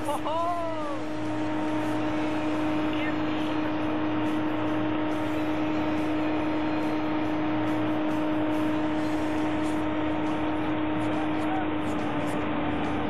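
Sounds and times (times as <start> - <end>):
tractor diesel engine running: 0.0 - 13.0.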